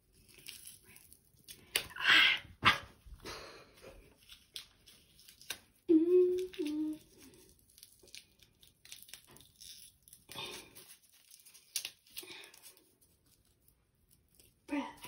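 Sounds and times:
bath bomb crumbling and scraping: 0.0 - 1.9.

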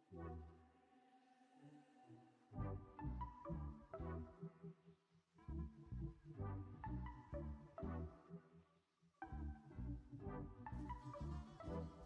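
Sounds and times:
soft background music: 2.5 - 4.8, 5.4 - 8.6, 9.2 - 12.0.

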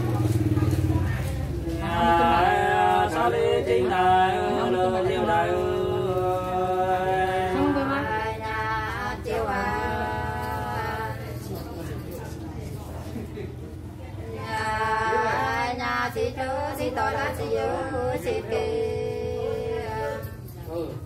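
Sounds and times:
unaccompanied folk singing: 0.0 - 12.4, 14.1 - 20.9.

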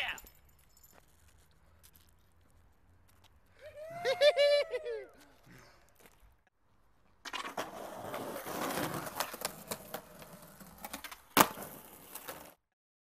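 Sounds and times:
skateboard wheels rolling: 7.0 - 12.6
skateboard grinding along ledge: 7.2 - 12.6
skateboard landing clack: 10.8 - 12.6.

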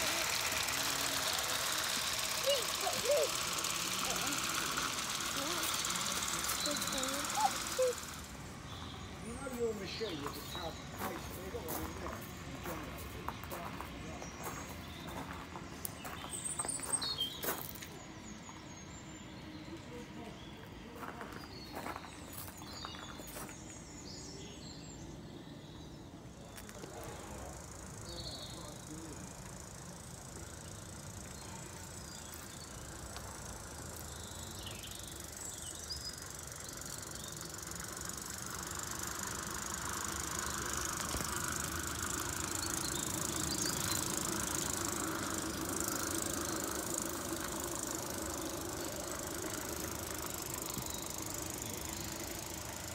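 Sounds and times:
steam train hissing and rumbling: 0.0 - 14.0
birds chirping: 0.0 - 52.9.

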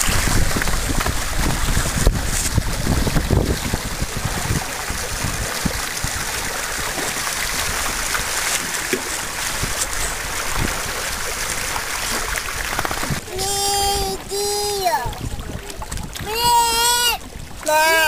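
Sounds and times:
water rushing along hull: 0.0 - 18.0
wind buffeting microphone: 0.0 - 18.0.

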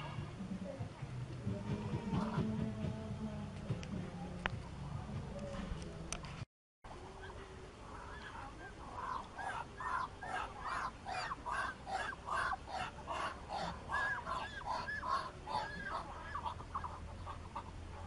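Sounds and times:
ducks calling: 7.0 - 18.0.

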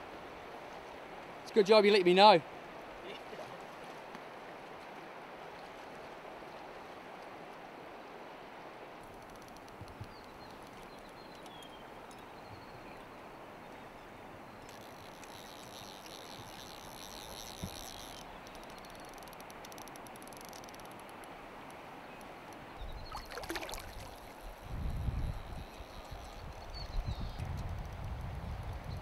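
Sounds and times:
river flowing over stones: 20.8 - 24.6.

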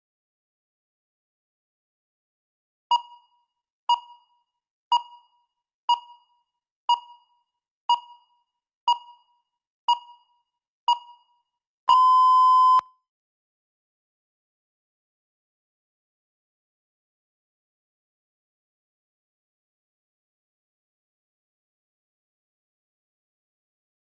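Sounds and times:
short timer beeps: 2.9 - 7.3, 7.9 - 9.3, 9.9 - 10.3, 11.9 - 12.9
long steady beep: 11.9 - 12.9.

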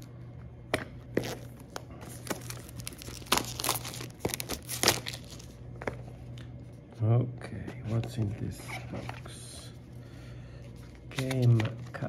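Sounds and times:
plastic shrink wrap tearing: 1.2 - 5.6.

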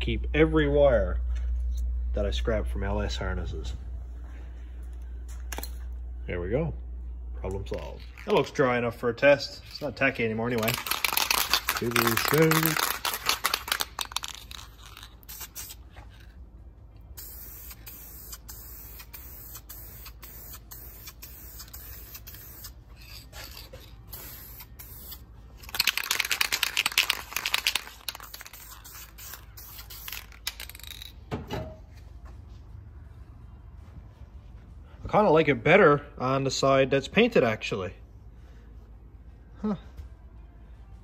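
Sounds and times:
spray can ball rattling: 7.8 - 8.6, 9.6 - 16.3, 17.2 - 31.2
aerosol spray hiss: 17.2 - 22.8.

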